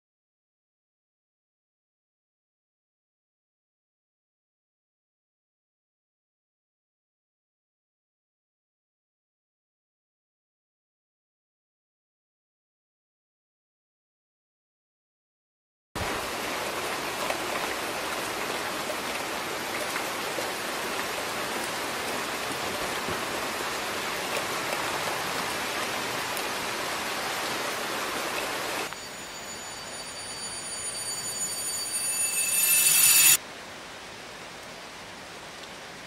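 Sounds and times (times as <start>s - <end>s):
steady rain falling: 16.0s - 32.0s, 33.4s - 36.0s
high-pitched ringing drone: 28.9s - 33.4s.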